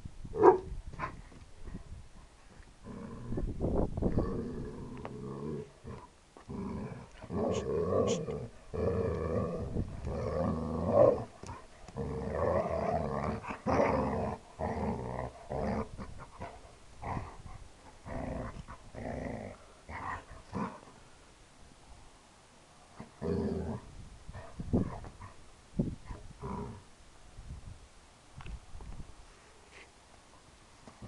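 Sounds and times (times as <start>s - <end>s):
dogs growling: 4.1s - 20.9s.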